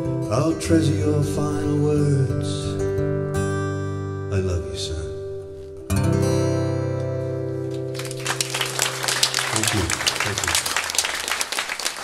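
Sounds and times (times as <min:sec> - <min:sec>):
acoustic guitar chords: 0:00.0 - 0:08.0
audience applause: 0:07.8 - 0:12.0.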